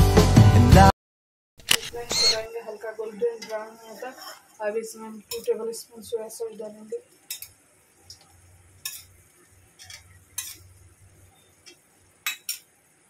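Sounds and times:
spatula scraping a wok: 3.4 - 4.6, 8.8 - 11.5.

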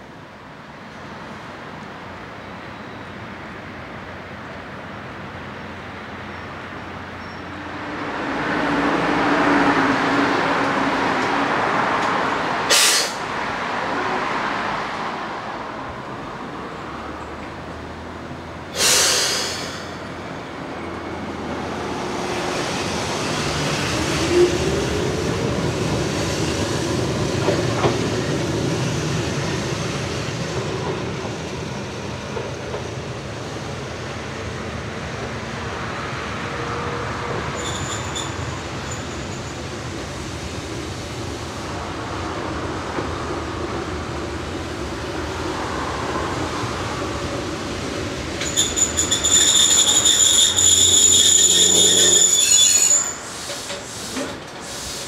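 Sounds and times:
electric train running rumble: 6.6 - 55.0
compressed air hiss: 12.7 - 13.2, 18.8 - 20.0, 53.2 - 55.0.

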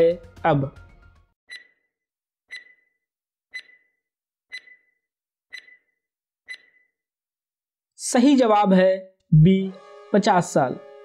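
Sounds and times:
countdown timer ticking: 1.5 - 1.8, 2.5 - 2.9, 3.5 - 3.9, 4.5 - 5.9, 6.5 - 6.8.

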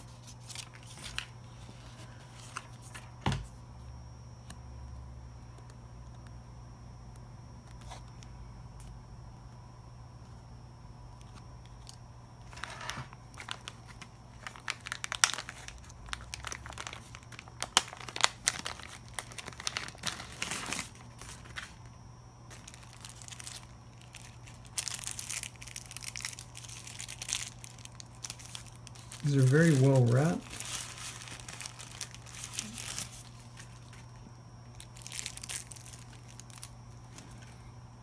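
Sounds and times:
plastic wrapping crinkling: 0.0 - 3.2, 11.3 - 37.5
faint steady hum: 0.0 - 38.0.

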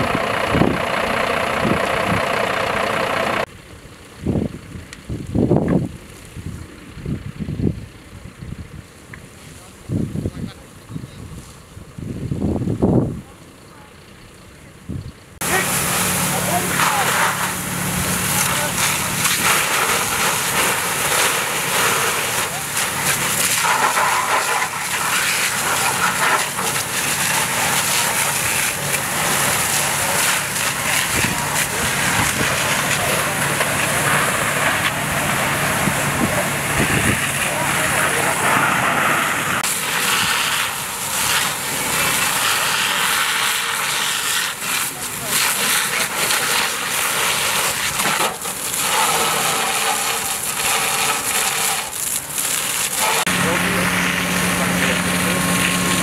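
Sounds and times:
fire hose water spraying: 0.0 - 5.2, 15.4 - 56.0
low engine hum: 0.0 - 43.1, 52.2 - 56.0.

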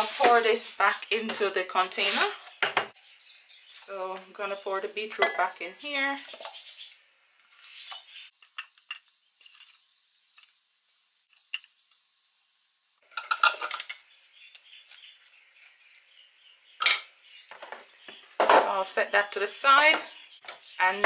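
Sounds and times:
spatula scraping plastic bowl: 1.8 - 2.4.

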